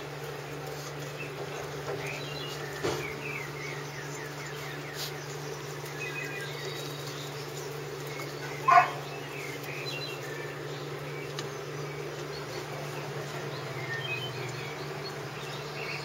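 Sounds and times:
steady buzzing hum: 0.0s - 16.0s
puppy yelping: 8.6s - 9.1s.

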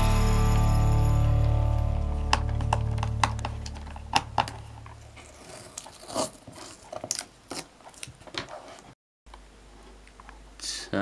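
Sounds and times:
background music: 0.0s - 4.6s.

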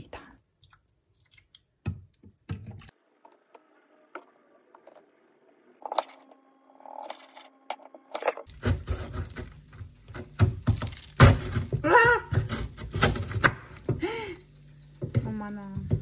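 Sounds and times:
kitchen knocks and clatter: 15.0s - 16.0s.

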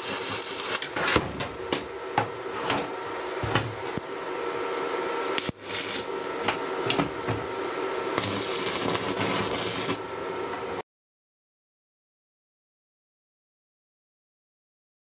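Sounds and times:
steady hum: 0.0s - 10.8s.

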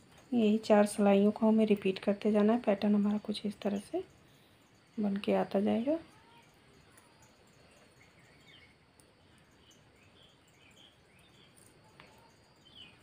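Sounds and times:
faint background hiss: 0.0s - 13.0s.

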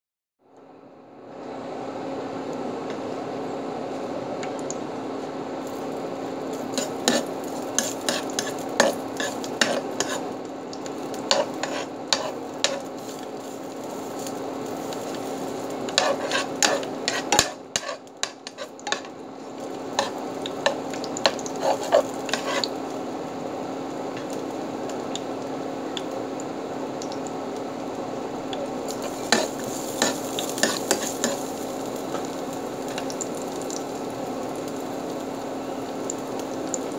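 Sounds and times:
steady hum: 0.4s - 36.9s
garlic sizzling in hot oil: 5.6s - 36.9s
spatula scraping against pan: 6.5s - 19.2s, 19.9s - 22.8s, 28.9s - 33.2s.

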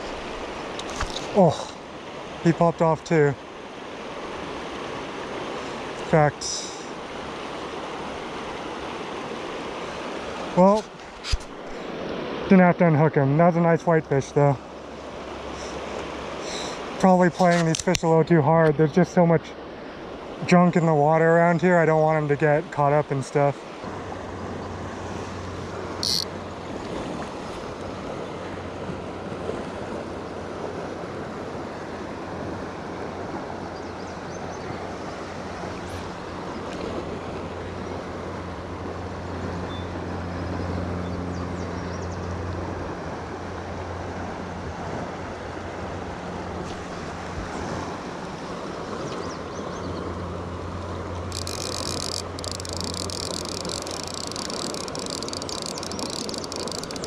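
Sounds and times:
river rushing: 0.0s - 12.6s, 13.2s - 17.8s, 22.7s - 41.3s, 42.5s - 57.0s
sharp click: 17.4s - 18.1s, 51.3s - 57.0s
fly reel drag rattle: 26.0s - 26.4s, 51.3s - 57.0s.

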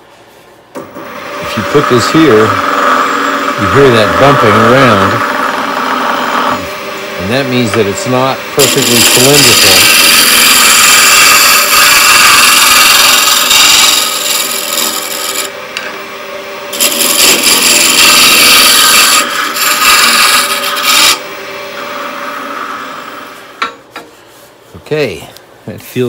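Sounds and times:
lathe motor hum: 0.8s - 23.8s
gouge shaving wood: 1.1s - 6.6s, 7.3s - 15.5s, 16.7s - 21.2s.

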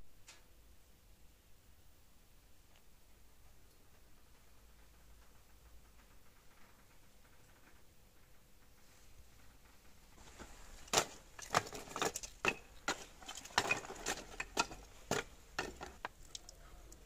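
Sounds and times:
wood kindling clattering: 9.6s - 16.5s.

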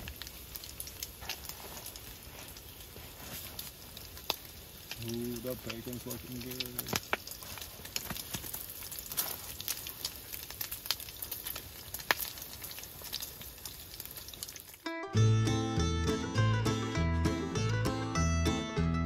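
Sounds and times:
bacon sizzling in a frying pan: 0.0s - 14.9s
string-band music: 14.8s - 19.0s.

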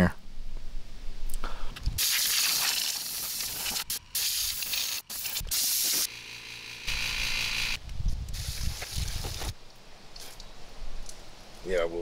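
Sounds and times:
compressed air blow gun hissing: 2.0s - 6.1s, 8.3s - 9.5s.

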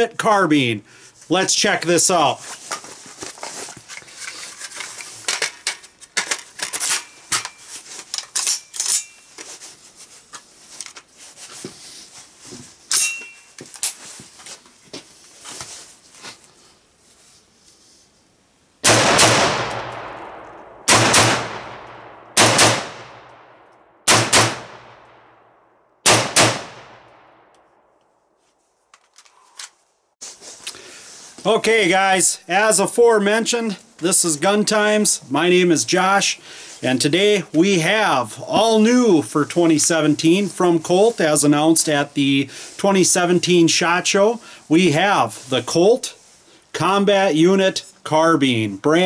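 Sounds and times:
rifle shots with echo: 18.8s - 27.5s.

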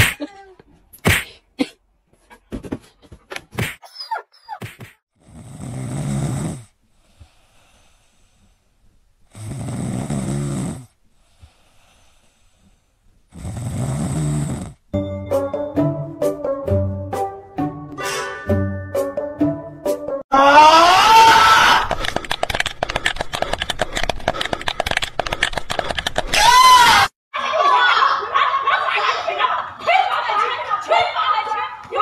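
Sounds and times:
cat snoring: 5.2s - 8.5s, 9.3s - 14.9s.

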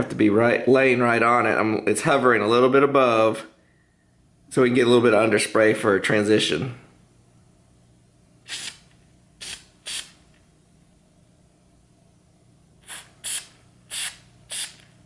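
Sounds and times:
spray paint can hissing: 9.4s - 10.2s, 12.8s - 14.8s.

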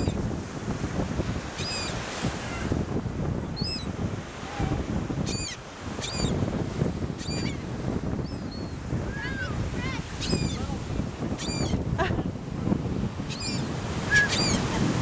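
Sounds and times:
surf breaking on beach: 0.0s - 5.2s, 8.8s - 15.0s
wind buffeting microphone: 0.0s - 15.0s
gulls calling: 5.3s - 6.4s, 7.2s - 12.1s, 13.3s - 15.0s.

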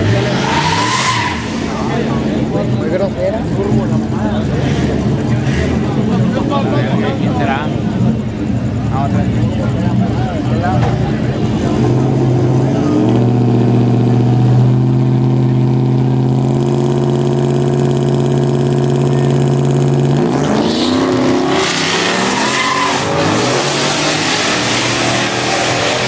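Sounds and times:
pickup engine revving and accelerating: 0.0s - 2.8s, 11.2s - 26.0s.

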